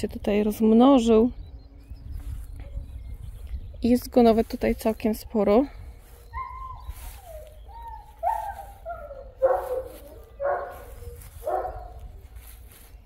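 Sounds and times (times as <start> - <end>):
dog yelping barks: 6.3 - 12.0.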